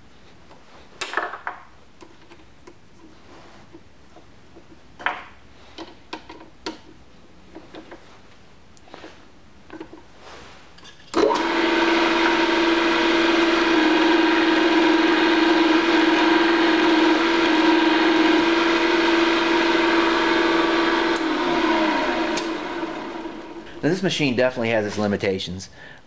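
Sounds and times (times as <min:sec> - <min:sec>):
drill press motor humming: 0:11.2 - 0:23.9.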